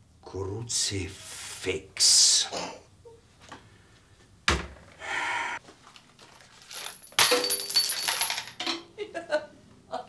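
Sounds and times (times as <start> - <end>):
metal kitchenware clattering: 6.8 - 8.9.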